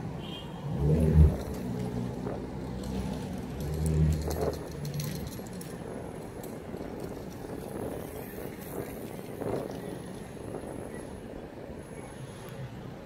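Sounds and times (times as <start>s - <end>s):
passing traffic engine hum: 0.0s - 13.0s
light clicks and rattles: 1.4s - 9.8s.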